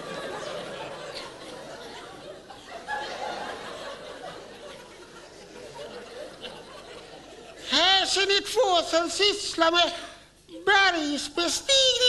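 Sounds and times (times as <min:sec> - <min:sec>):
quiet laughter: 0:00.0 - 0:07.7.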